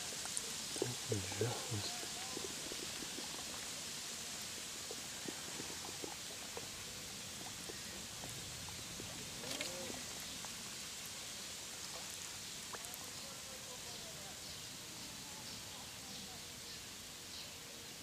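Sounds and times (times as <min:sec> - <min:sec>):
steady outdoor hiss: 0:00.0 - 0:18.0
faint ticks: 0:04.8 - 0:11.2.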